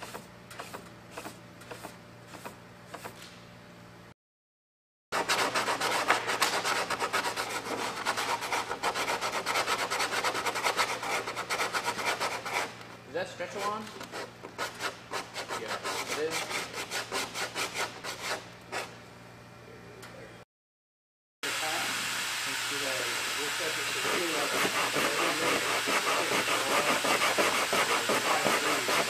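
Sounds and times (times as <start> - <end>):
hand sanding strokes: 0.0 - 3.2, 5.2 - 12.8, 13.4 - 19.0, 23.4 - 29.0.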